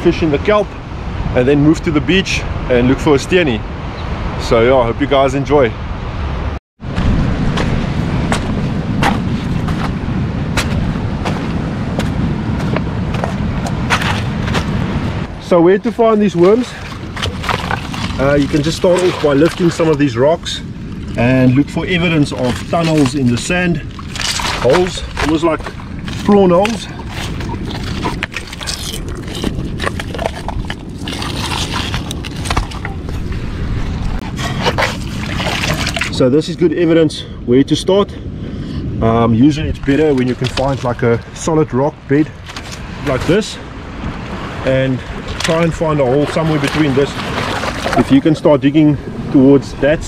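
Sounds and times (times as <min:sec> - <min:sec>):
steady low rumble: 0:05.7 - 0:50.0
footsteps on rocks and pebbles: 0:07.6 - 0:14.9, 0:16.4 - 0:20.1, 0:20.9 - 0:33.5, 0:39.9 - 0:41.0
low rumble: 0:16.6 - 0:36.3.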